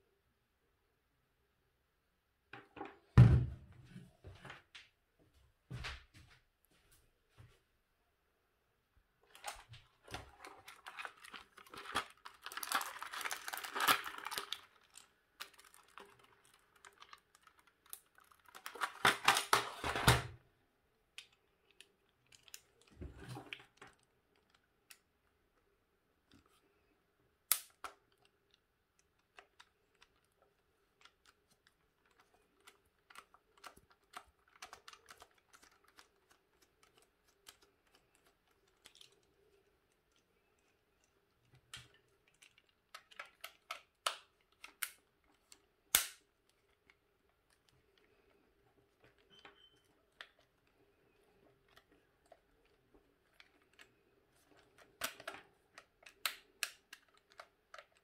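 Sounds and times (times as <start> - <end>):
plastic housing clicks and rustles: 9.3 - 20.2, 27.5 - 58.0.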